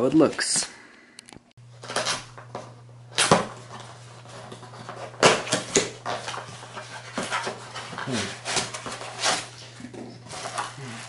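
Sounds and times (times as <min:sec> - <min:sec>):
cardboard flaps rustling: 0:03.2 - 0:11.0.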